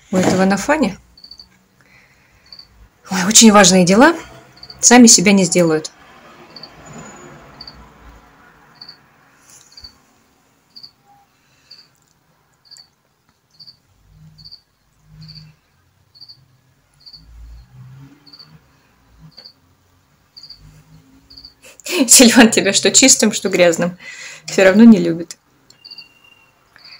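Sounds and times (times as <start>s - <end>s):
cricket chirping: 1.1s - 1.6s, 2.4s - 2.8s, 4.4s - 4.8s, 6.5s - 10.0s, 10.7s - 11.9s, 12.6s - 19.6s, 20.3s - 21.7s, 25.7s - 26.9s.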